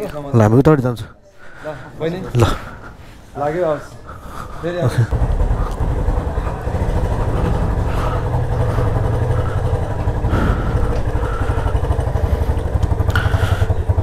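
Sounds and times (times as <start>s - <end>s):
motorcycle engine at low revs: 5.1s - 14.0s.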